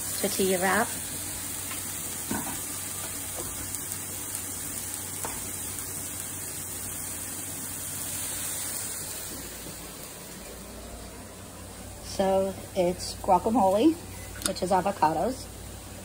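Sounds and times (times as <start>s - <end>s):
meat sizzling in a pan: 0.0s - 10.7s.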